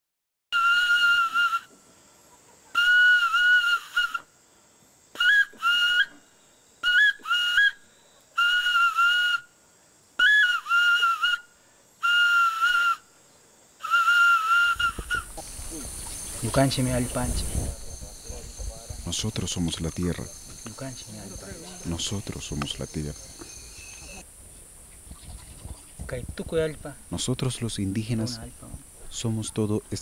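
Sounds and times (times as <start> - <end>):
high whistle-like tune: 0.5 - 1.7, 2.8 - 4.3, 5.2 - 6.2, 6.8 - 9.5, 10.2 - 13.1, 13.8 - 15.4.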